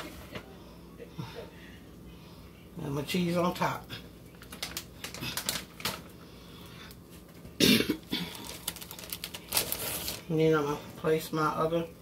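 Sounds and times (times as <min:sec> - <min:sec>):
plastic bag crinkling: 0:04.3 - 0:06.1, 0:08.1 - 0:10.4.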